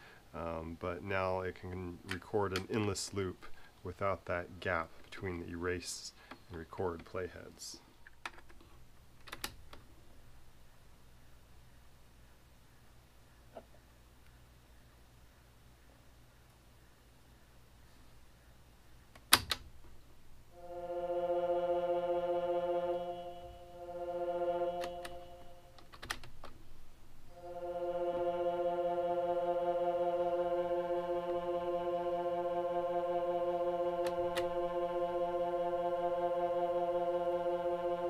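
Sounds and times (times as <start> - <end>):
synthesizer holding buzzy note: 20.5 - 25.8, 27.3 - 38.0.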